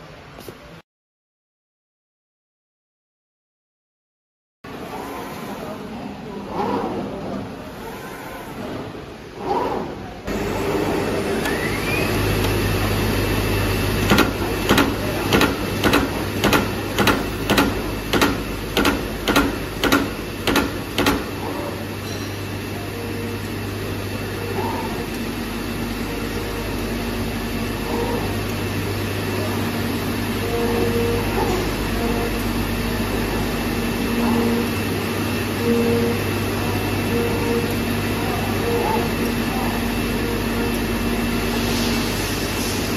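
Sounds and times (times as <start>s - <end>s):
cutting machine humming: 10.2s - 41.9s
punching tool clacks: 14.1s - 21.3s.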